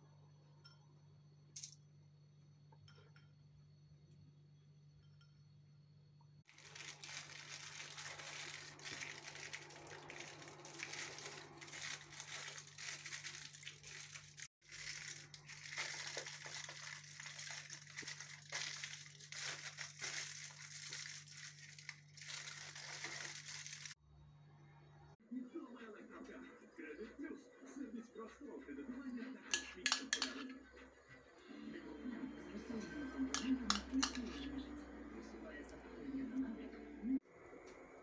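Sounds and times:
aluminium foil crinkling: 6.5s - 24.0s.

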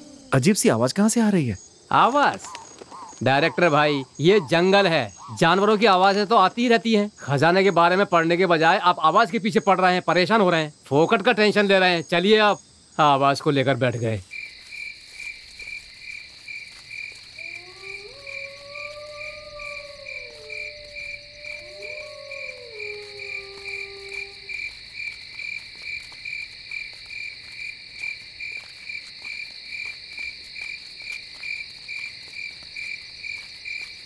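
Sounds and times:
cricket-like chirp pulsing: 0.0s - 34.0s
high insect hiss: 0.0s - 34.0s.

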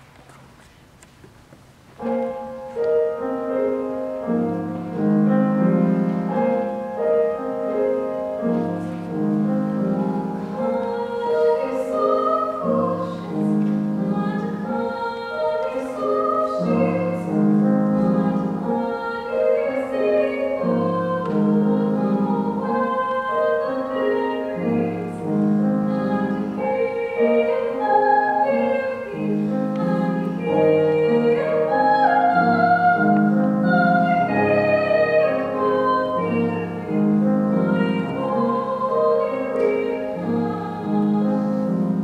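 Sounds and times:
grand piano accompaniment: 0.0s - 42.0s
woman singing operatically: 10.0s - 36.9s, 37.5s - 41.5s.

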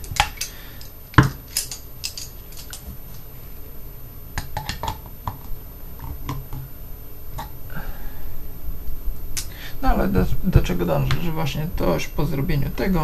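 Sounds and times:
pliers clicking on metal: 0.0s - 3.0s.

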